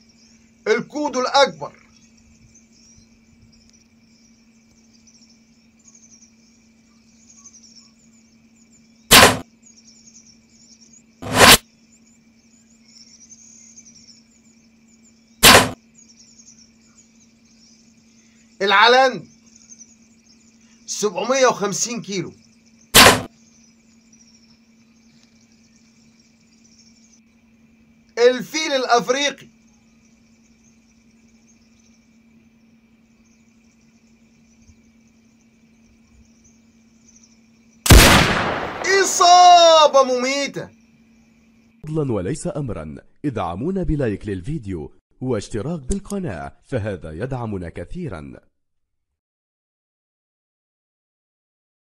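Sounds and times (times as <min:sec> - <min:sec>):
high insect chirring: 0:00.0 - 0:41.8
bow shot thwack: 0:09.1 - 0:09.4, 0:11.2 - 0:11.6, 0:15.4 - 0:15.8, 0:23.0 - 0:23.3, 0:37.9 - 0:38.9.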